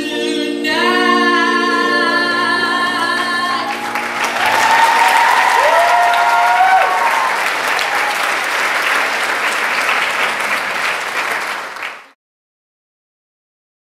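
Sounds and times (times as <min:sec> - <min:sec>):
singers holding notes: 0:00.0 - 0:08.5
audience applauding: 0:03.5 - 0:12.2.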